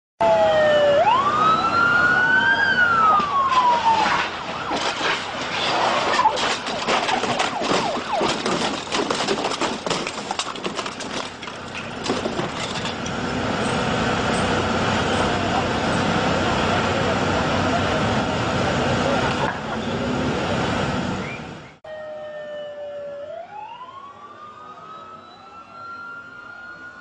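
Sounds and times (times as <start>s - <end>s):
police siren wailing: 0.2s - 11.3s, 21.8s - 27.0s
street noise knocks and rattles: 3.0s - 14.6s.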